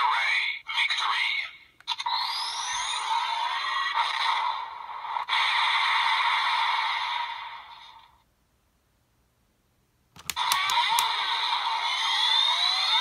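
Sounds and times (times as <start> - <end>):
electronic toy sound effects: 0.1 - 4.6, 10.2 - 13.0
plastic buckle clicks: 10.2 - 11.1.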